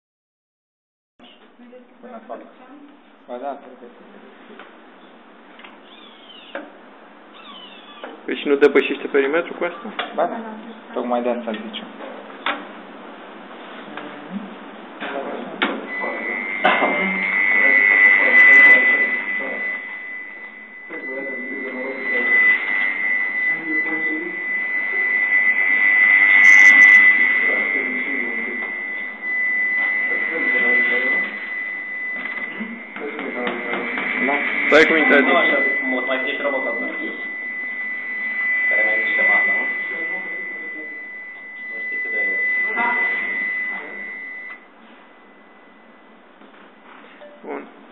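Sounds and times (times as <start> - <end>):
robot motor high-pitched whine: 5.8 - 6.6, 15.9 - 44.5.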